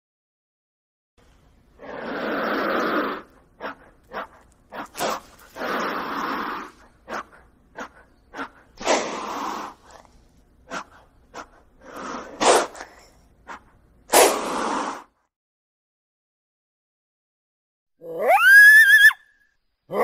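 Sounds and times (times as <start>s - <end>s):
lizard hissing: 8.4s - 10.1s, 11.8s - 13.0s, 14.1s - 15.1s.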